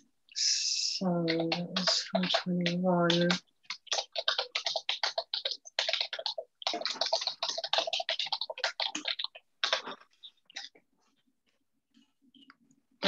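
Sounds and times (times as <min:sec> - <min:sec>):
keyboard typing: 0:01.2 - 0:10.7.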